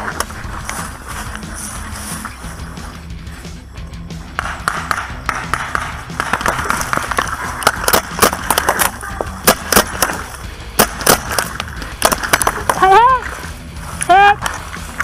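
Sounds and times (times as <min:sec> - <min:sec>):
paintball markers firing: 0:04.3 - 0:12.9.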